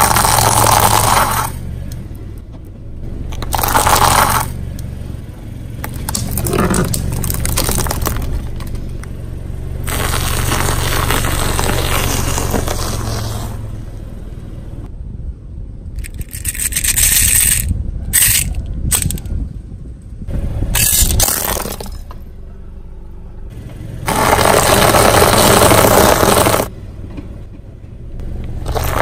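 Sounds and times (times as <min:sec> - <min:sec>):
car engine humming low: 0:00.0 - 0:16.0, 0:22.0 - 0:29.0
tyre crushing brittle things: 0:05.8 - 0:08.8, 0:28.7 - 0:29.0
sharp cracks and crackles: 0:05.8 - 0:09.2, 0:09.8 - 0:13.1.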